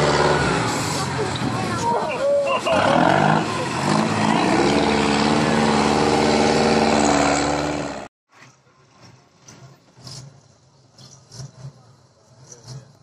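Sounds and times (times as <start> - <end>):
truck diesel engine revving hard: 0.0 - 8.1.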